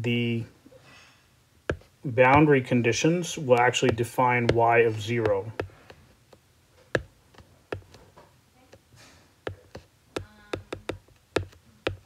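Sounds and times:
stylus tapping on glass screen: 0:06.9 - 0:08.0, 0:09.5 - 0:12.0.

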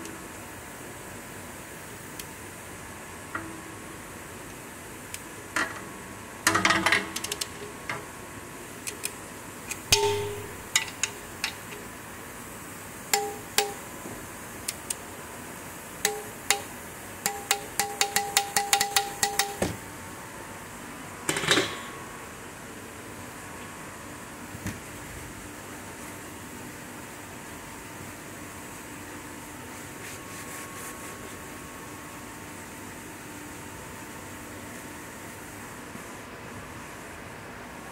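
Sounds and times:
ratchet clicking: 0:08.8 - 0:11.8, 0:16.0 - 0:19.6
metallic ringing: 0:09.9 - 0:11.1, 0:13.2 - 0:13.8, 0:16.1 - 0:19.6.

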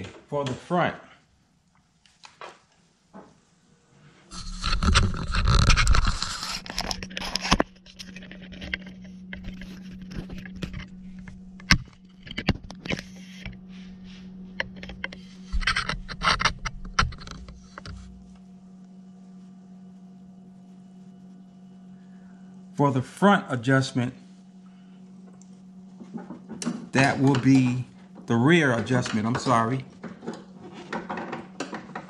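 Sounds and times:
low steady hum: 0:00.0 - 0:32.0
handling scraping and rustling: 0:04.0 - 0:18.3, 0:25.9 - 0:32.0.

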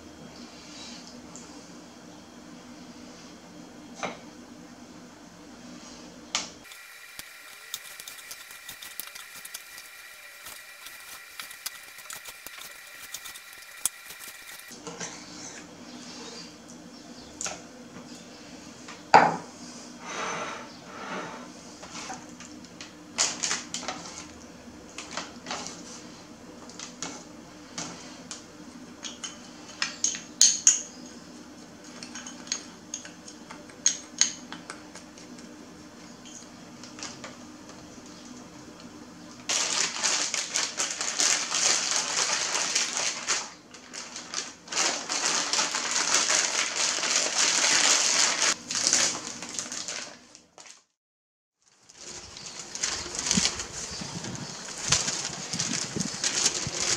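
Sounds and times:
plastic zip-lock bag crinkling: 0:39.5 - 0:50.9, 0:51.6 - 0:56.9.

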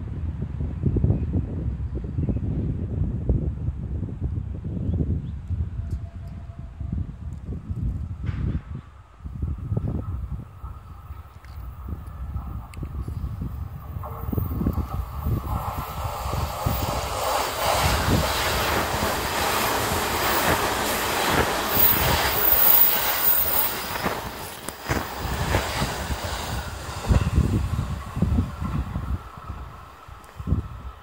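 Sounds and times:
low thumps of train: 0:05.4 - 0:31.0
train wheels rushing on rail: 0:07.2 - 0:31.0
high wheel squeal: 0:21.3 - 0:24.0.

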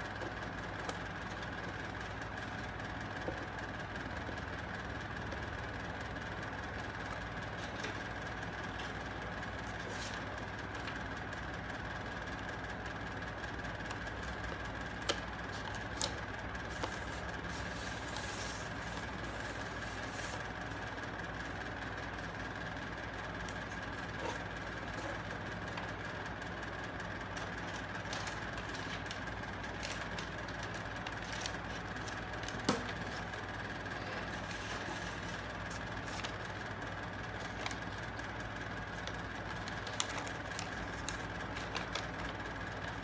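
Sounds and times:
steady hum: 0:00.0 - 0:43.0
paper rustling: 0:06.7 - 0:11.0, 0:13.8 - 0:26.2, 0:27.2 - 0:36.7, 0:37.3 - 0:38.2, 0:38.8 - 0:43.0.

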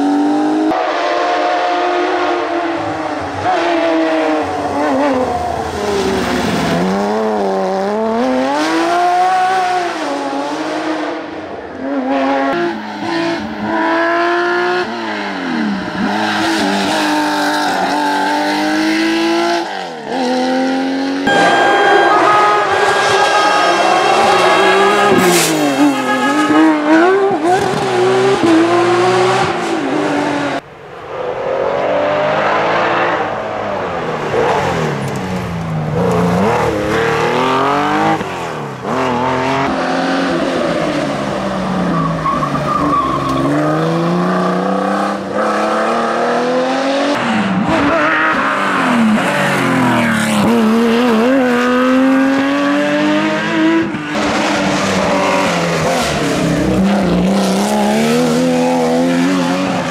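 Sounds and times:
rally car engines revving: 0:00.0 - 0:59.9.

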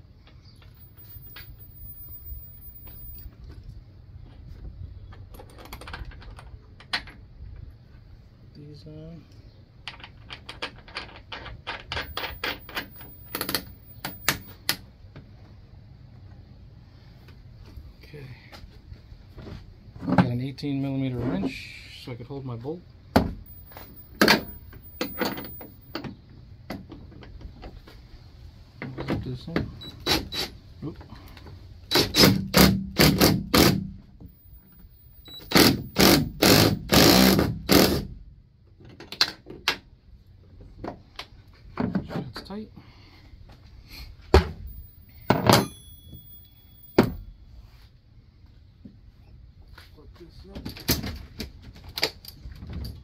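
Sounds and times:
cordless drill motor bursts: 0:35.2 - 0:38.1.

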